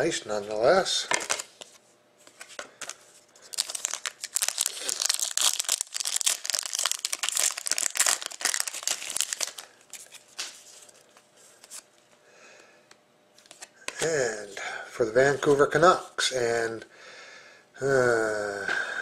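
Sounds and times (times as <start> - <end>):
foil pack tearing and crinkling: 2.8 - 10.6.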